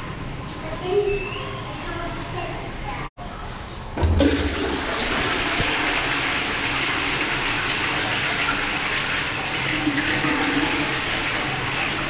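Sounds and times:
toilet flushing: 4.0 - 12.0.

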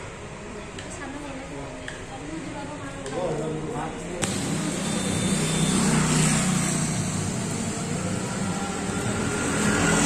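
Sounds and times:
vehicle engine running: 4.3 - 10.0.

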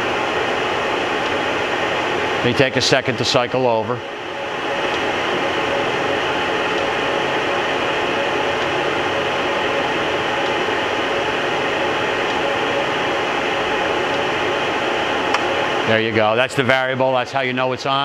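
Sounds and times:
grinder machine whir: 0.0 - 16.4.

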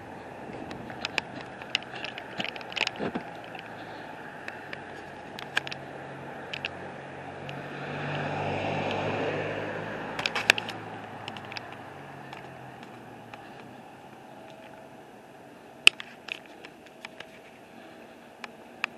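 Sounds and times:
vehicle passing: 0.0 - 15.9
sharp clicks and taps: 6.5 - 6.8, 10.2 - 13.7.

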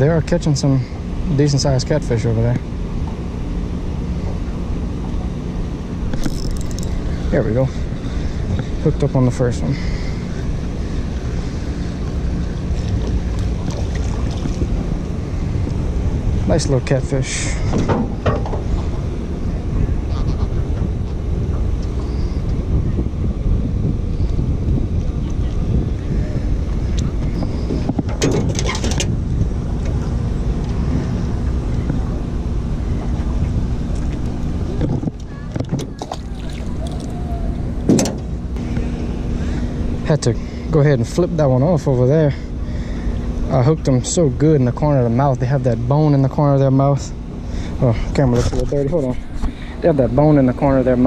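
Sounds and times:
water moving around boat: 0.0 - 51.0
wind buffeting microphone: 2.8 - 40.7.

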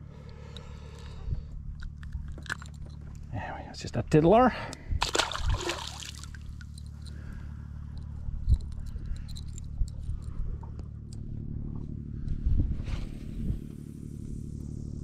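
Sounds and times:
low steady hum: 0.0 - 15.0
fish splashing in water: 5.0 - 6.7.

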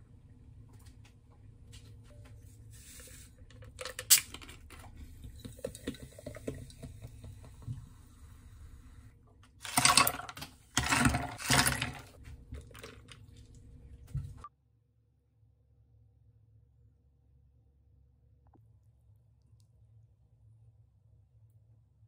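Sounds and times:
ice splashing and rattling: 9.6 - 13.6.

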